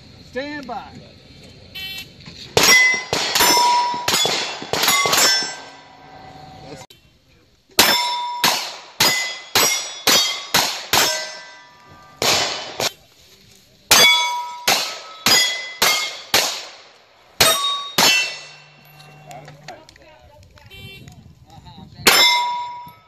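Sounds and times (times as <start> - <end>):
carbine gunshots: 2.5 - 6.2, 7.8 - 13.0, 13.9 - 19.7, 22.1 - 22.9
steel plate clanging: 2.6 - 6.3, 7.8 - 12.9, 13.9 - 16.6, 17.4 - 19.3, 22.1 - 23.0.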